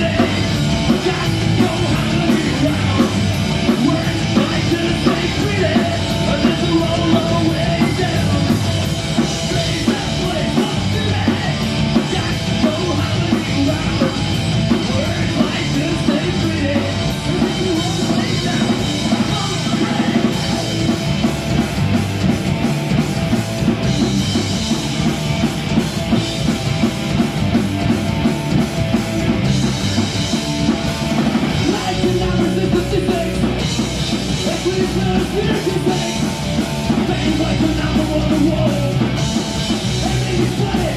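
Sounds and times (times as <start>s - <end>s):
singer's vocals: 0.0s - 20.5s, 31.5s - 39.2s, 39.8s - 40.9s
bass guitar: 0.0s - 40.9s
drum kit: 0.0s - 40.9s
electric guitar: 0.0s - 40.9s.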